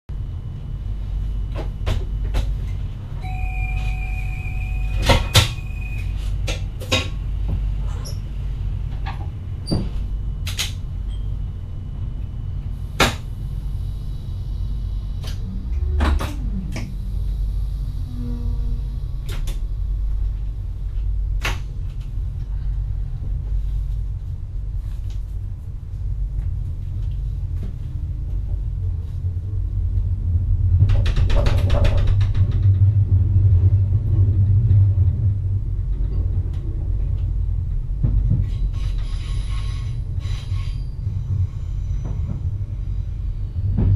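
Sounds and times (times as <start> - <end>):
train cab low hum: 0.1 - 43.9
brief high tone: 3.2 - 6.4.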